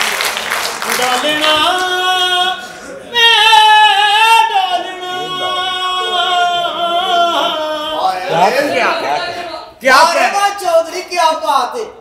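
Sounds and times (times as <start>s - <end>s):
person singing a long high note: 1.2s - 8.5s.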